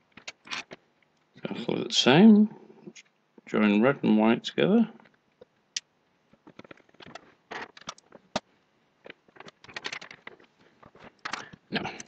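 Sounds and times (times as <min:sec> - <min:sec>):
clicks taps and scrapes of wires: 0:00.1 - 0:01.4, 0:05.0 - 0:12.0.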